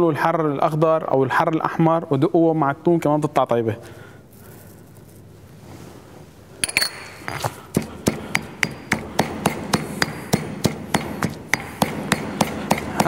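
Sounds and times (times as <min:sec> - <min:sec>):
stone pestle pounding in mortar: 0:06.6 - 0:13.0.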